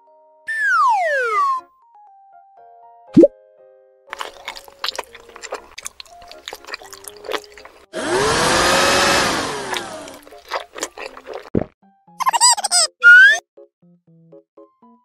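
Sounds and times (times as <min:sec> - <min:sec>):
moist chewing and munching: 0:04.1 - 0:11.7.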